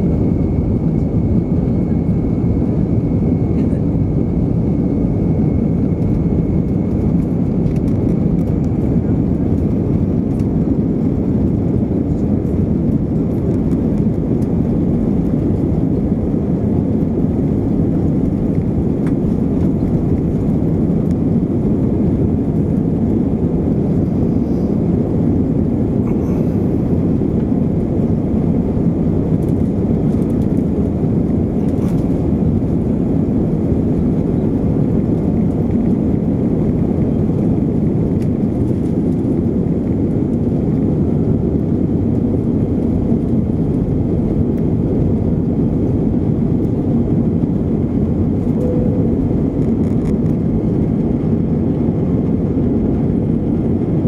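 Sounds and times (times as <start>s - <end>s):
jet engines rumbling: 0.0s - 54.0s.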